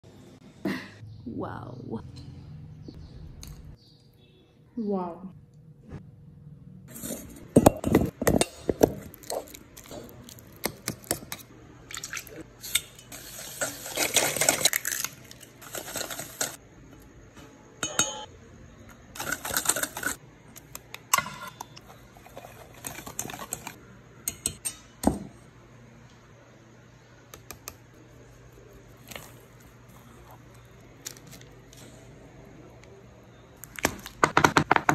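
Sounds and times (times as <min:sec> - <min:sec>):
utensils clinking in metal bowl: 0:11.0 - 0:16.6, 0:19.1 - 0:20.2, 0:21.1 - 0:24.9.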